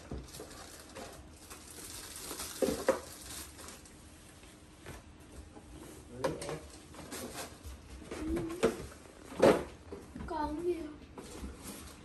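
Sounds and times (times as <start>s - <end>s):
plastic parts clattering: 0.0s - 3.8s
plastic packaging rustling: 0.0s - 4.1s, 6.7s - 8.3s, 11.2s - 12.0s.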